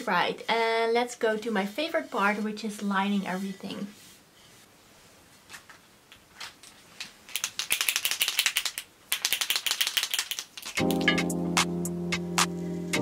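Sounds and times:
paint marker ball rattling: 7.3 - 10.9
music with steady notes: 10.8 - 13.0.

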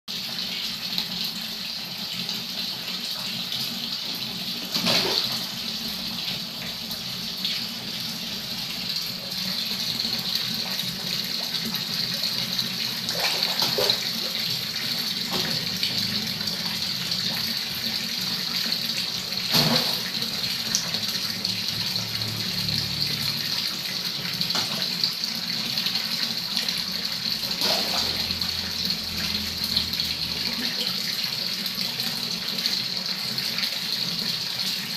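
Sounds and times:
water pouring into a pond: 18.7 - 24.2, 26.6 - 32.0.

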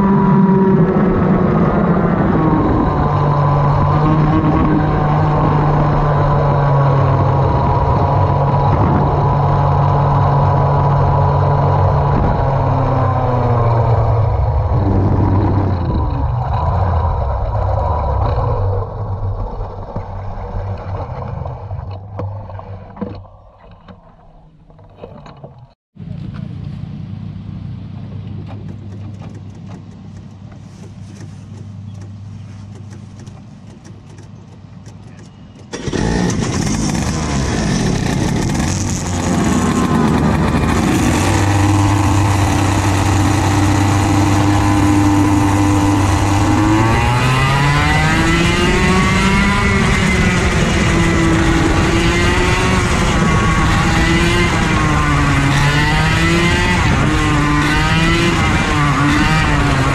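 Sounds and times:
kart engine revving: 0.0 - 22.5, 35.6 - 59.9.

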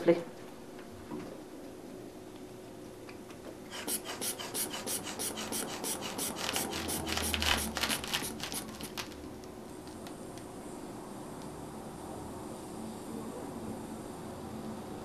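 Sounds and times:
inflation bulb airy puffs: 3.7 - 9.0.

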